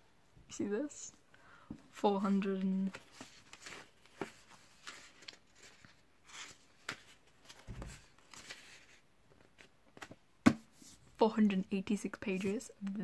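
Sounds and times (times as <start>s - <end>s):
book pages turning: 2.3s - 11.0s
book bumping: 9.9s - 10.7s.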